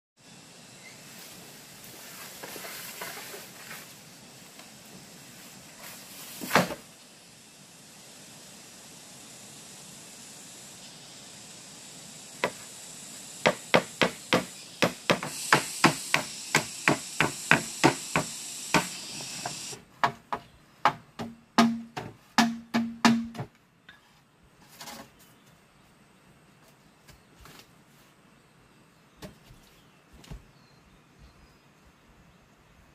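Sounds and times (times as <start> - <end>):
tool striking bamboo pole: 13.4 - 23.6.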